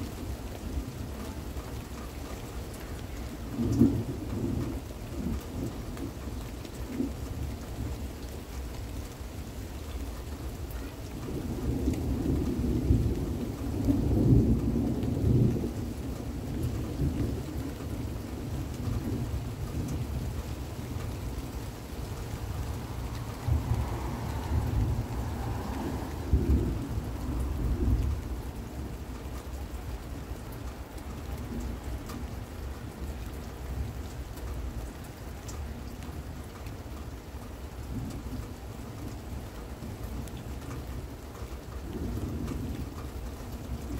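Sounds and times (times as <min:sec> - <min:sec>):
steady rain: 0:00.0 - 0:43.9
thunder rumbling: 0:11.2 - 0:32.4.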